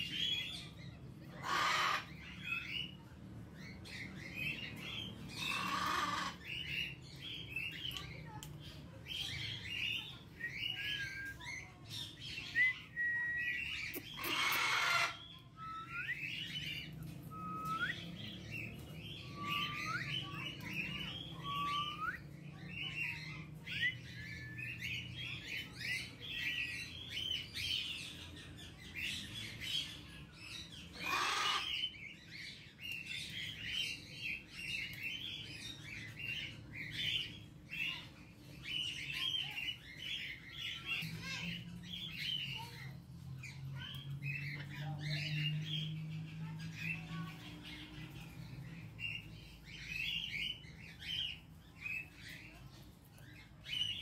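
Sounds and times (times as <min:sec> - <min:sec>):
birds chirping and twittering: 0:00.0 - 0:54.0
harsh parrot squawks: 0:01.4 - 0:02.1, 0:05.4 - 0:06.4, 0:14.1 - 0:15.3, 0:31.0 - 0:31.8.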